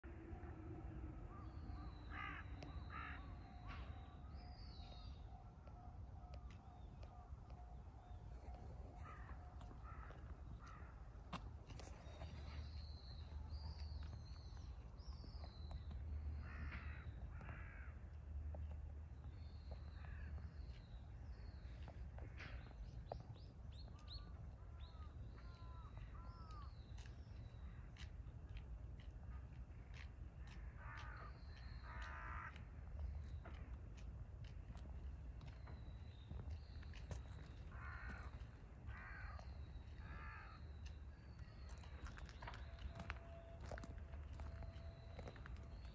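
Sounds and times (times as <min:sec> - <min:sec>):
crow cawing: 0:02.1 - 0:03.3, 0:09.0 - 0:10.9, 0:16.4 - 0:18.0, 0:31.9 - 0:32.6, 0:37.7 - 0:39.4, 0:40.0 - 0:40.6.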